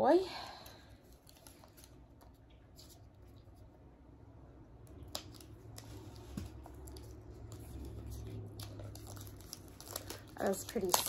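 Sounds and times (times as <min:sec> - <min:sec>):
wrapping crinkling and clicking: 0:01.0 - 0:03.6, 0:04.9 - 0:11.0.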